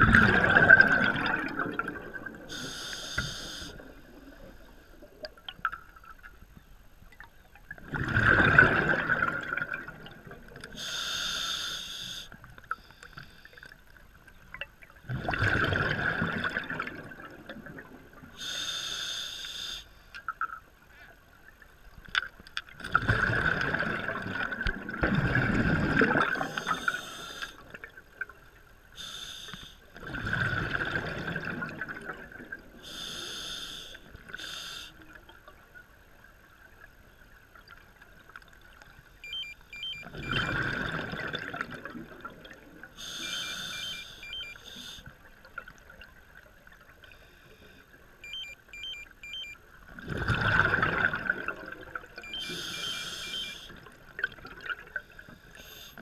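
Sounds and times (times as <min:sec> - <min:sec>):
exhaled bubbles rumbling underwater: 0:00.0 - 0:10.9, 0:14.0 - 0:18.5, 0:20.4 - 0:28.9, 0:29.9 - 0:33.1, 0:34.0 - 0:47.0, 0:48.2 - 0:55.5
regulator hissing inhalations: 0:02.5 - 0:03.7, 0:10.8 - 0:12.4, 0:18.4 - 0:19.9, 0:29.0 - 0:29.8, 0:32.9 - 0:35.0, 0:43.0 - 0:45.1, 0:52.4 - 0:53.7.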